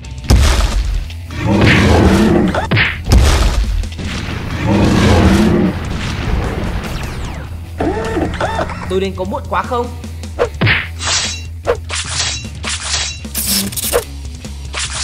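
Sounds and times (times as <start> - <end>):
background music: 0.0 - 15.0
crash: 2.9 - 7.5
growling monster roars: 4.5 - 5.9.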